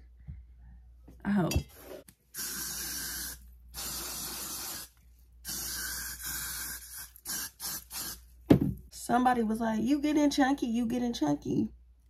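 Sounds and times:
aerosol hairspray bursts: 2.4 - 4.9, 5.5 - 8.2.

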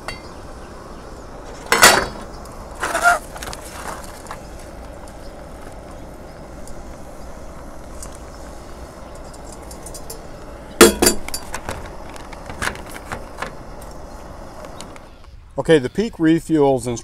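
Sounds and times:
metal pot lid clanking: 1.6 - 2.2, 9.3 - 11.6.

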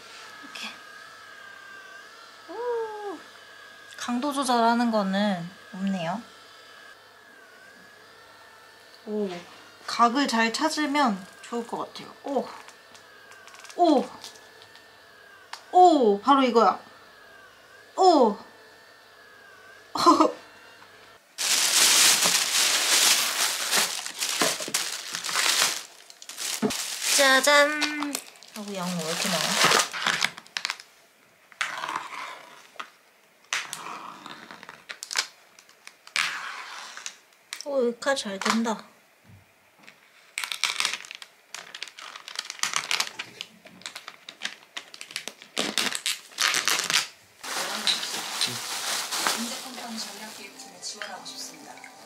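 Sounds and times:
plastic bags crinkling: 12.5 - 14.8, 21.4 - 30.9, 40.4 - 52.0.

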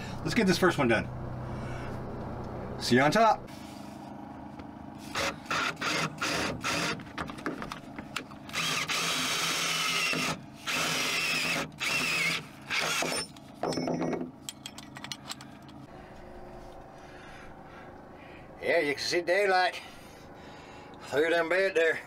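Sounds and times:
power drill bursts: 5.1 - 7.0, 8.5 - 13.3.

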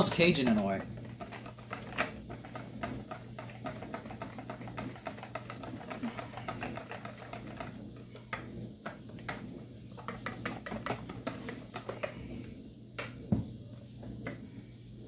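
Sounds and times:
whisk scraping a bowl: 0.0 - 12.5.

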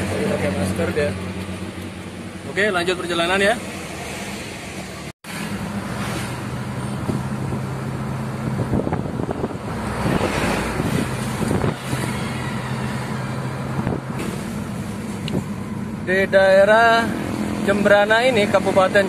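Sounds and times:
car engine and tyre drone: 0.0 - 19.0
traffic noise: 0.0 - 19.0.

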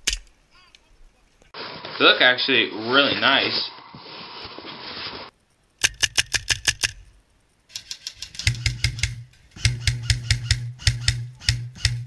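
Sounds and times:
airsoft gun firing rapid shots: 7.8 - 12.0.

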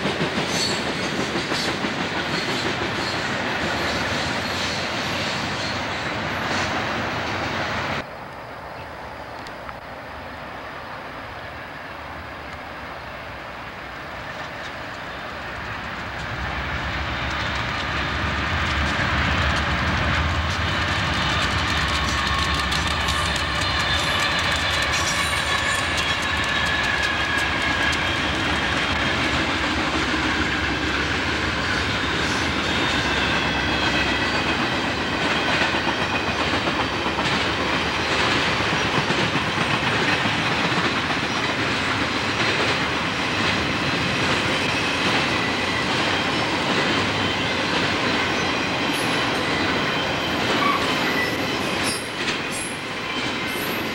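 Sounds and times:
diesel locomotive whine: 0.0 - 53.9
wheels clicking over rail joints: 14.3 - 53.9.

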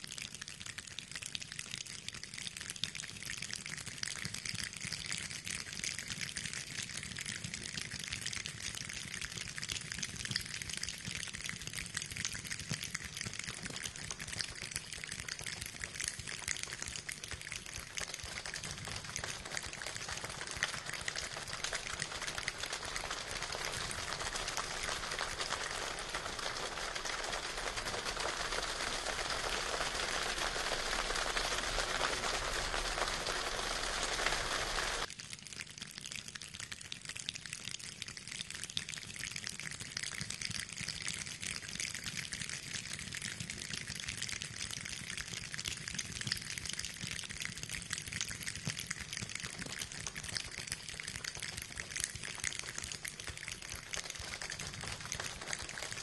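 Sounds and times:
floodwater running and splashing: 16.5 - 35.1, 51.3 - 56.0.

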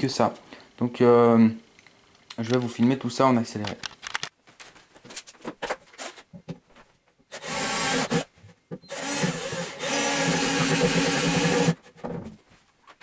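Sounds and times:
cordless drill boring into wood: 7.3 - 8.3, 8.9 - 11.8.

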